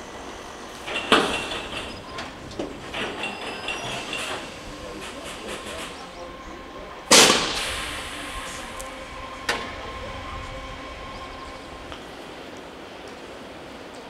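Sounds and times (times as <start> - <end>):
thin steady whine: 0.0 - 13.1
sudden loud burst: 6.6 - 11.2.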